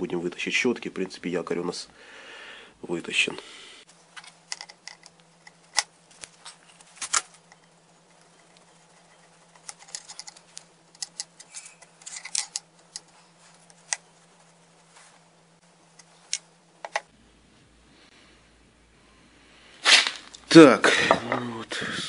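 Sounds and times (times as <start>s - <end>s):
screwdriver and parts clicking: 4.2s - 5.9s, 9.5s - 13.1s.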